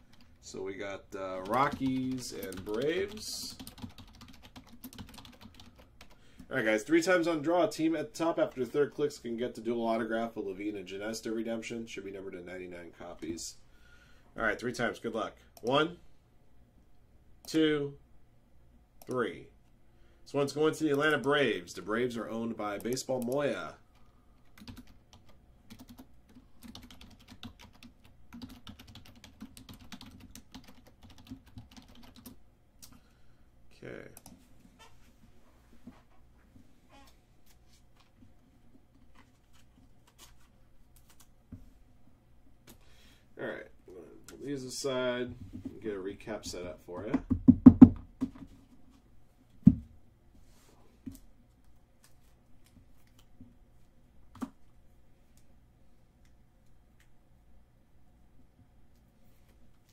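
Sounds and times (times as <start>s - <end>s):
typing on computer keyboard: 1.4s - 6.2s, 24.5s - 32.4s.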